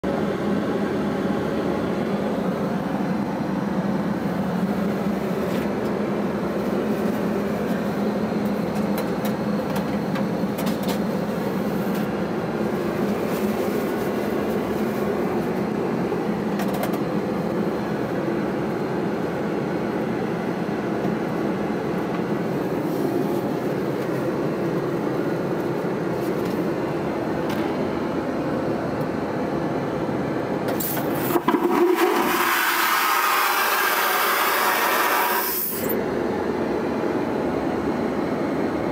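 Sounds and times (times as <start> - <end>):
airliner cabin drone: 0.0 - 38.9.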